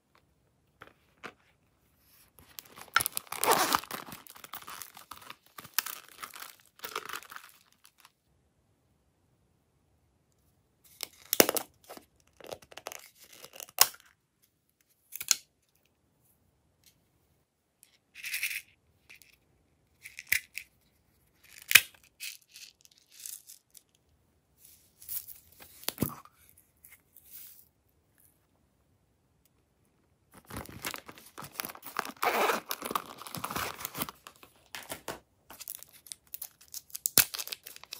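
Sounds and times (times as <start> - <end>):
crinkling rustles: 0.8 - 8.1, 30.3 - 36.8.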